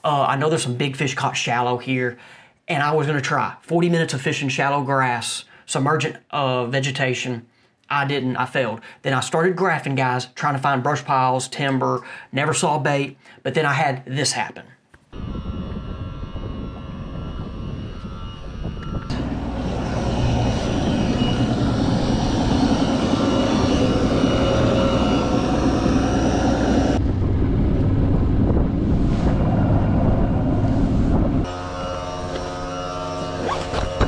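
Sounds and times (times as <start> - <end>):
wind buffeting microphone: 15.2 - 31.5
low drone: 15.2 - 34.0.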